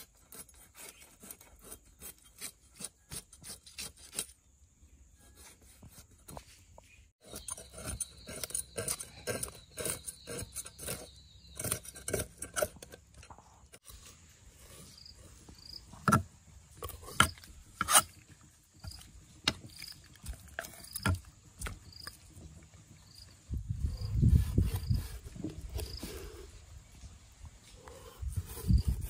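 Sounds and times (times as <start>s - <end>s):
insect chirping: 7.2s - 12.8s, 13.9s - 29.0s.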